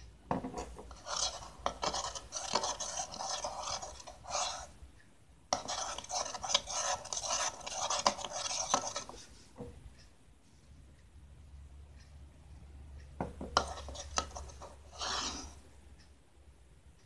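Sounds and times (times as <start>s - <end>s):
metal spoon scraping a bowl: 0.4s - 4.8s, 5.5s - 9.4s, 13.6s - 15.6s.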